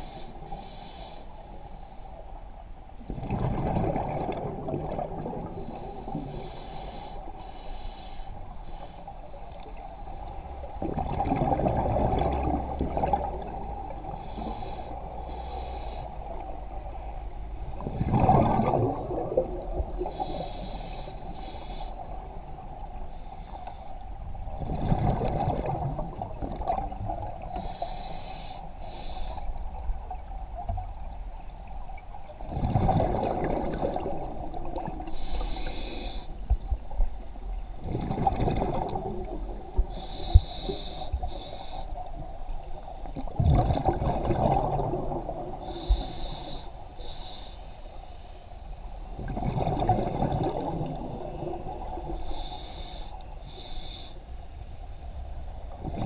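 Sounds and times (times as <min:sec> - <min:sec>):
regulator inhale hissing: 0:00.0 - 0:02.2, 0:05.6 - 0:10.4, 0:14.1 - 0:16.4, 0:20.0 - 0:22.3, 0:23.0 - 0:24.0, 0:27.5 - 0:29.6, 0:35.1 - 0:36.5, 0:39.3 - 0:42.1, 0:45.6 - 0:48.8, 0:52.1 - 0:54.6
exhaled bubbles rushing: 0:03.1 - 0:06.2, 0:10.8 - 0:14.2, 0:17.8 - 0:20.1, 0:24.6 - 0:27.4, 0:32.4 - 0:35.1, 0:37.8 - 0:39.4, 0:43.2 - 0:45.6, 0:49.2 - 0:52.2.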